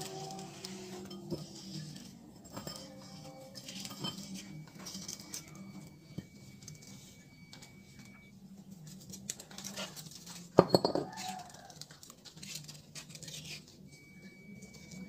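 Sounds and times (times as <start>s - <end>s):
parts knocking and rustling: 8.9s - 13.6s
metal clang on concrete floor: 10.6s - 11.2s.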